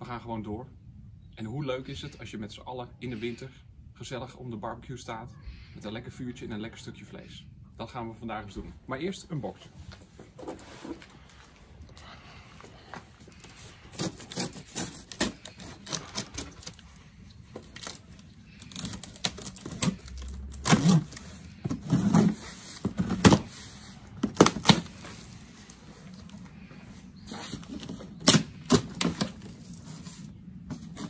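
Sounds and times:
knife slitting packing tape: 13.9 - 16.8, 17.6 - 21.3, 24.2 - 25.0, 27.5 - 30.2
cardboard flaps pulled open: 17.6 - 25.2.

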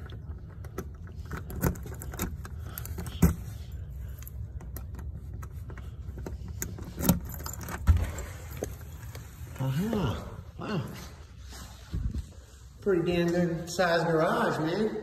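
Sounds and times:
keys jangling: 6.3 - 9.2.

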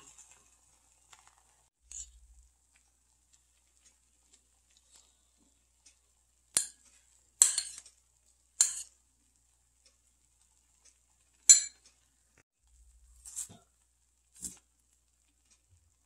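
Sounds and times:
metal spoon clinking on dishes: 6.5 - 7.8, 8.6 - 9.0, 11.5 - 12.0.

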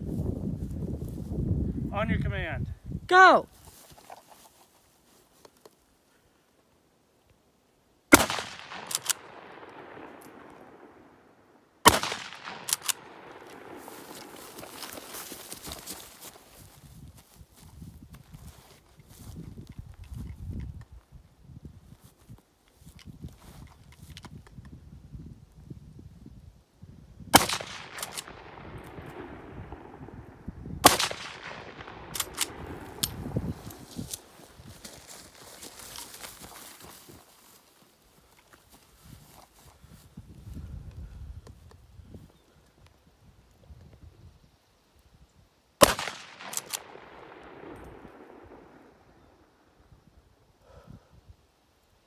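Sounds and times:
rifle shots with rolling echo: 8.1 - 15.2, 27.3 - 34.0, 45.8 - 49.8
rifle bolt clicks: 8.2 - 10.3, 11.9 - 13.6, 30.9 - 33.2, 45.8 - 47.0.

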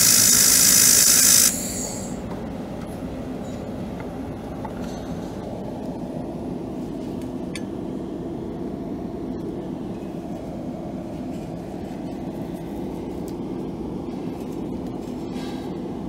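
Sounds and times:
workshop machinery hum: 0.0 - 16.0.

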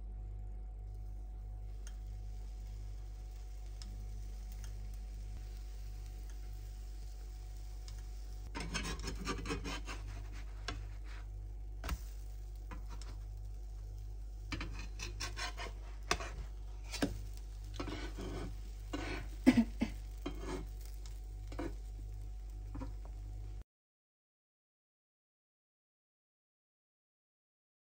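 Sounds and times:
steady low hum: 0.0 - 23.6
spatula scraping frying pan: 2.3 - 11.3, 11.9 - 22.0.

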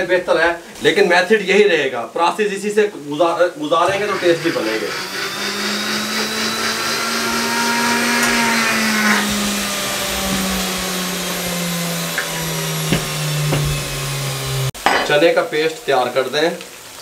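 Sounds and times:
blender grinding: 3.8 - 14.8.

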